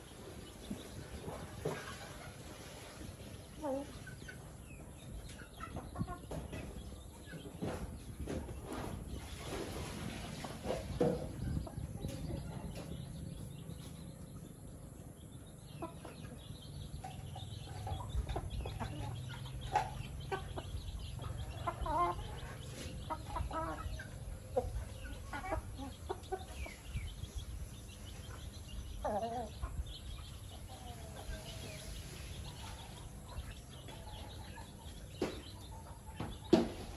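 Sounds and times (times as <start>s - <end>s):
chickens clucking softly: 0.0s - 36.9s.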